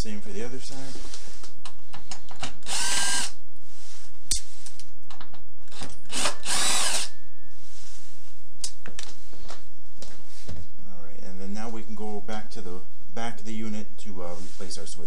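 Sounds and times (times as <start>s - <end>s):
cordless power driver running: 2.6s - 3.4s, 6.1s - 7.1s.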